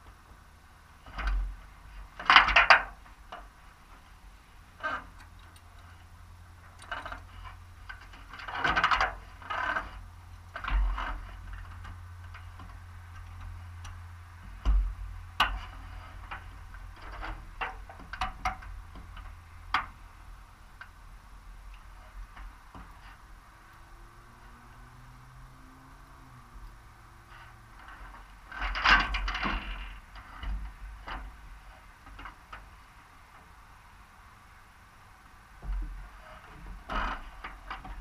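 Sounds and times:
clicks and knocks of gear: 1.0 - 4.1, 4.8 - 6.0, 6.6 - 20.0, 27.3 - 32.8, 35.6 - 38.0
rustles of gear: 1.0 - 20.2, 35.6 - 38.0.

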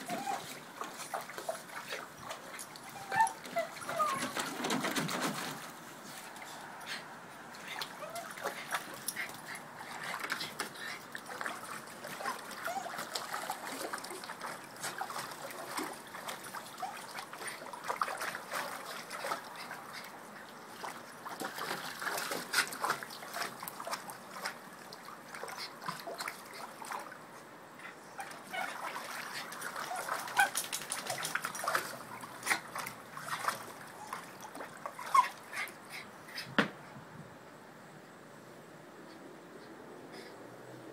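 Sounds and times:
dog whimpering: 0.0 - 0.6, 2.8 - 4.4, 12.2 - 13.4
water sloshing and splashing: 0.0 - 36.3.

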